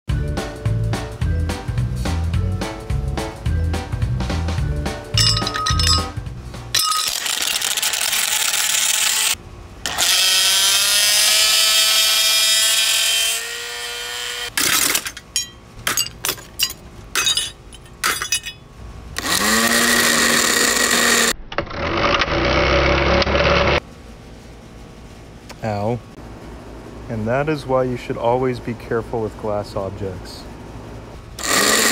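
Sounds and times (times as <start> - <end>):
glass clinking and breaking: 5.2 - 7.3, 14.6 - 18.7
blender motor whining: 7.2 - 14.5, 19.2 - 23.8, 31.4 - 31.9.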